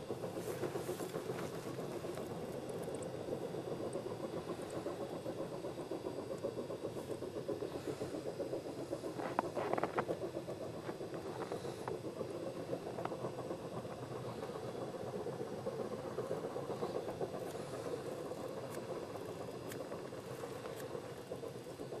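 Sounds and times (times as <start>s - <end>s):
distant steam locomotive chuffing: 0.0s - 22.0s.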